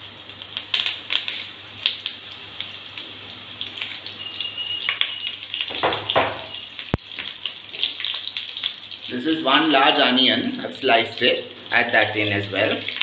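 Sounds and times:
leaves sizzling in hot oil: 0:00.0 - 0:13.0
crackles and pops: 0:00.2 - 0:09.0.

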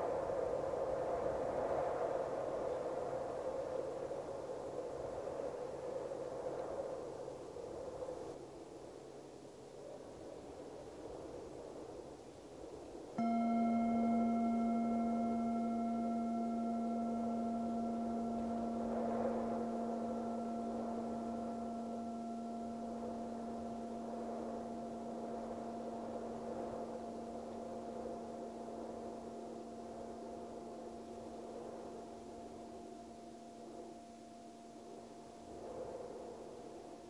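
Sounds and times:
soft wind: 0:00.0 - 0:37.0
singing bowl ringing: 0:13.2 - 0:36.7.

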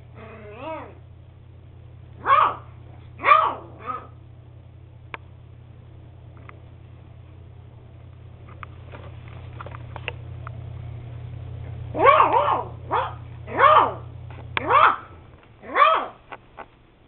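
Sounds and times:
puppy barking: 0:02.2 - 0:04.2, 0:11.9 - 0:16.2.

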